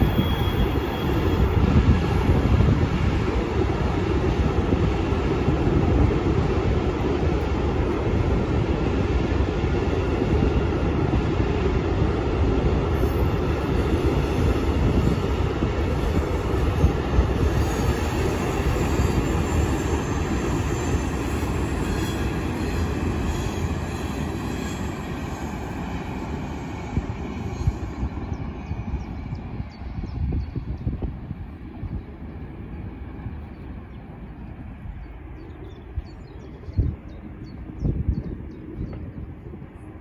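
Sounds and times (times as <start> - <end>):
high wheel squeal: 0.0 - 1.6, 17.6 - 25.6
rumble of train wheels on rail: 0.0 - 40.0.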